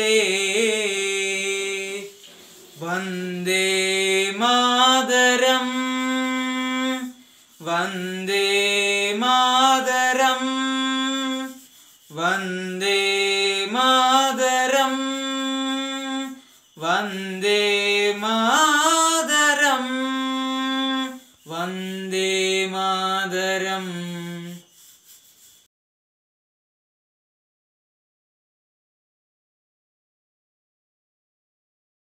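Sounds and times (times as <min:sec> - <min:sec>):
boy singing: 0:02.8 - 0:24.6.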